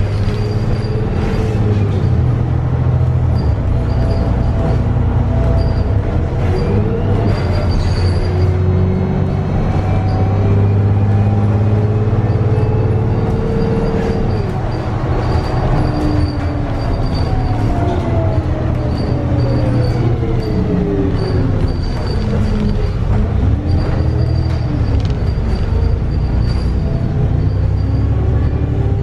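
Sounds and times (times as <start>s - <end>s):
bus diesel engine drone: 0.0s - 29.0s
gearbox whine: 9.8s - 29.0s.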